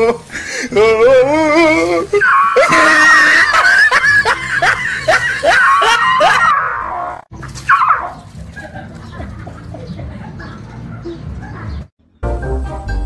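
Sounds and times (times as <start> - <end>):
dog barking and yelping: 2.2 - 2.9, 5.4 - 8.3, 10.4 - 11.8.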